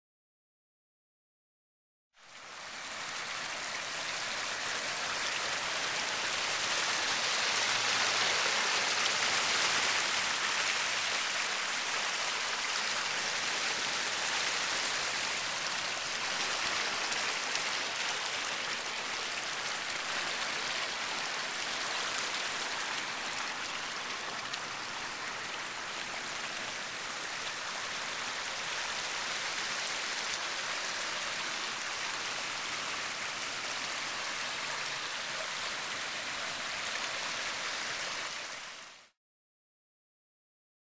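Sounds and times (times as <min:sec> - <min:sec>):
waterfall splashing into a pond: 0:02.3 - 0:39.2.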